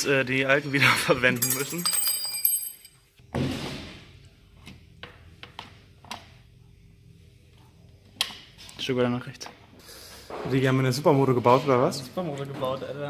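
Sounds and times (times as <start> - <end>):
metallic clink: 1.3 - 2.9.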